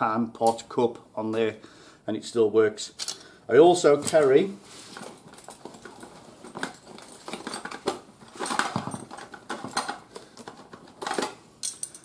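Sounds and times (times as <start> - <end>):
bag rustling: 4.0 - 9.8.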